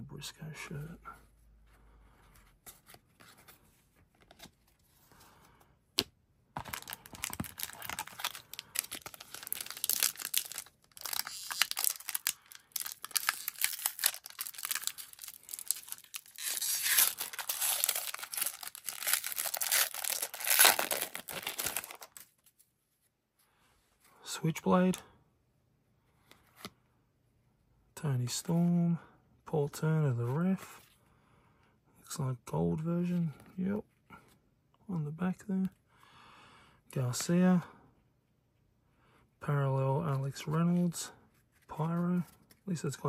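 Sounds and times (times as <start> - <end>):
wrapper tearing and crinkling: 6.6 - 22.3.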